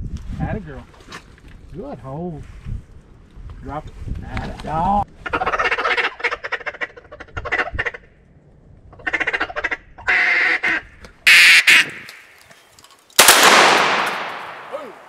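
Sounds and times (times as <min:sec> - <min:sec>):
duck call quacks: 0:05.2 - 0:08.0, 0:09.0 - 0:12.1.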